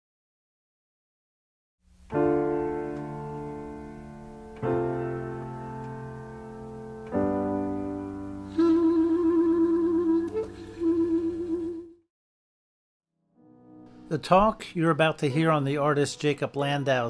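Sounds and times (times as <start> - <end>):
sustained keyboard chords: 2.0 - 11.9, 13.4 - 17.0
wavering vibrato tone: 8.5 - 12.0.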